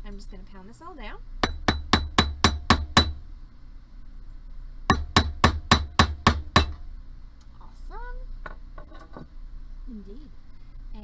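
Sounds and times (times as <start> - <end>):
mallet pounding metal on block: 1.4 - 3.2, 4.9 - 6.8.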